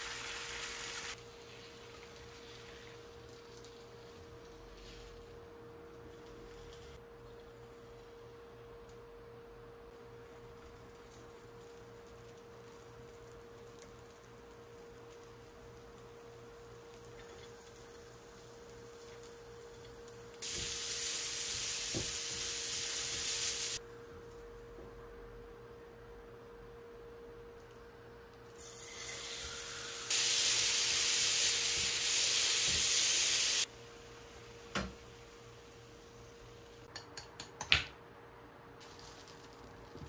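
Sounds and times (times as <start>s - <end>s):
food sizzling in a frying pan: 0.0s - 5.2s, 10.2s - 23.8s, 28.6s - 36.8s.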